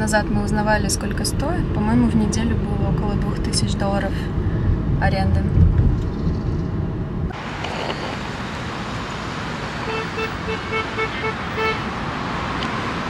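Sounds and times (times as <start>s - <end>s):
road noise: 0.0s - 13.0s
car horn short toots: 9.9s - 11.8s.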